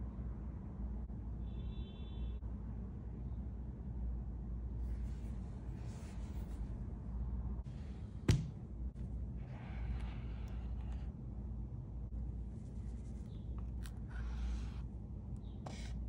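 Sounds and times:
steady low hum: 0:02.4 - 0:16.0.

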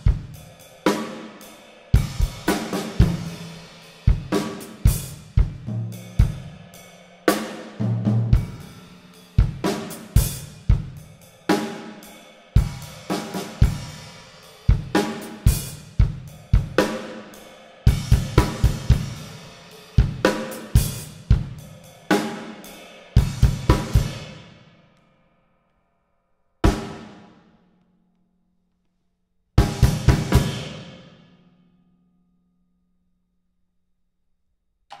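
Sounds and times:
cymbals crashing: 0:00.0 - 0:05.2
drum kit played with sticks: 0:00.0 - 0:24.6, 0:26.6 - 0:27.4, 0:29.6 - 0:31.2.

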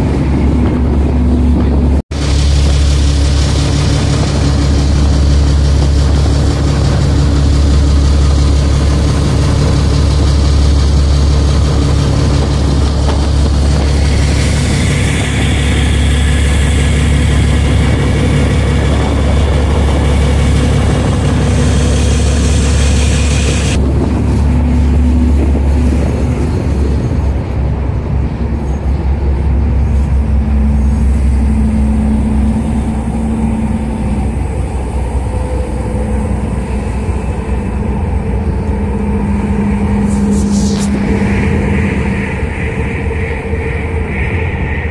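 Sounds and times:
boat engine droning: 0:00.0 - 0:44.9
rushing hiss: 0:02.2 - 0:27.4.

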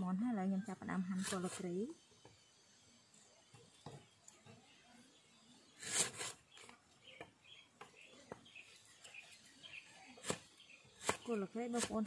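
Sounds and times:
cleaver slicing on wooden block: 0:10.2 - 0:12.0.

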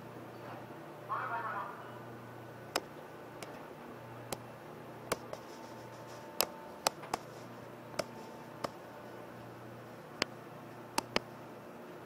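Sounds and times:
ferry engines humming: 0:00.0 - 0:12.0
sharp irregular clicks: 0:02.7 - 0:03.6, 0:05.1 - 0:08.8, 0:10.2 - 0:11.3.

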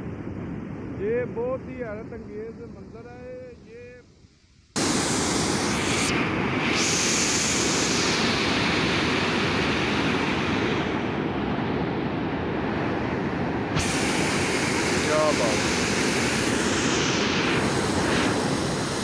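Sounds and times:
water rushing through sluice gate: 0:13.7 - 0:19.0.

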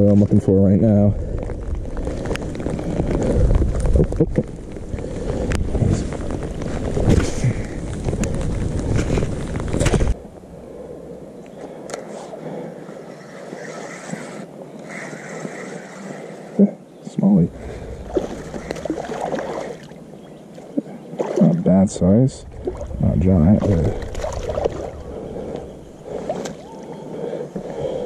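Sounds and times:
wind buffeting microphone: 0:00.0 - 0:11.4, 0:17.4 - 0:20.5, 0:21.5 - 0:26.7.

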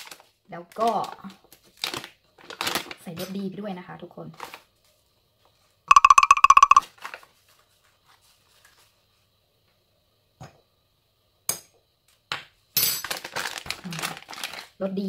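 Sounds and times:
crinkly rustling: 0:13.1 - 0:14.8.

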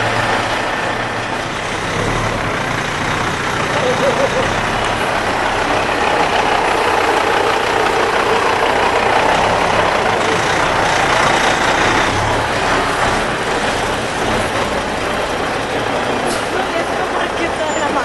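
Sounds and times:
diesel truck engine passing: 0:00.0 - 0:18.0.

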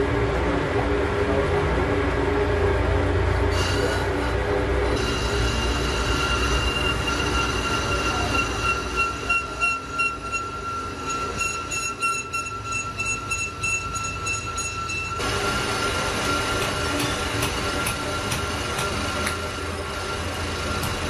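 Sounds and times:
lathe tool squealing on metal: 0:03.5 - 0:16.6
lathe running: 0:03.5 - 0:21.0.

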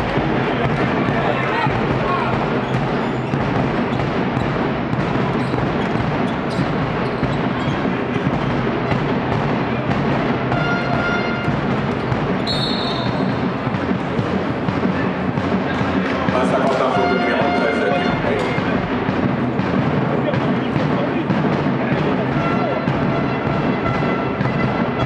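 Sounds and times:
basketball bouncing: 0:00.0 - 0:25.0
echoing background noise: 0:00.0 - 0:25.0
sneakers squeaking on court: 0:02.4 - 0:08.6, 0:12.0 - 0:13.5.

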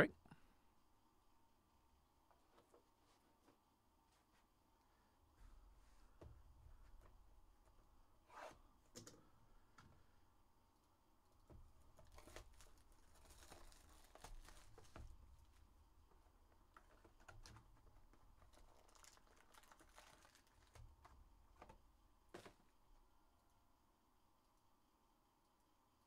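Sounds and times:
packaging crinkling: 0:11.9 - 0:15.6, 0:16.7 - 0:21.7.

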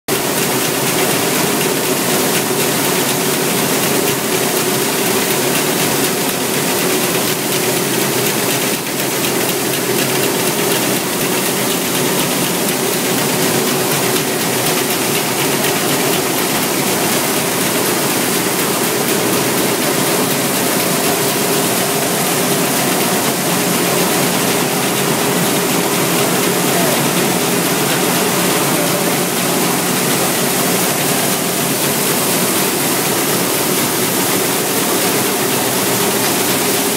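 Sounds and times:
machinery motor hum: 0:10.8 - 0:36.9.

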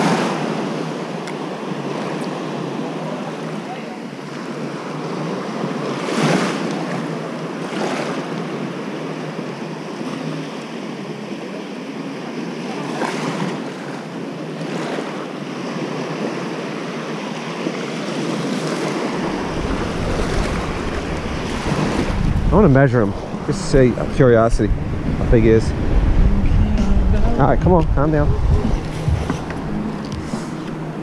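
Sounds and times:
surf waves washing on beach: 0:00.0 - 0:31.0
wind on microphone: 0:18.3 - 0:31.0.

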